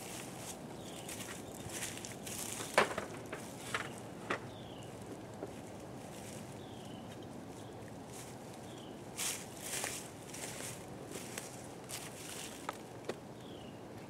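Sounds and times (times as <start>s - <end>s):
knocks and clunks of equipment: 2.6s - 4.5s.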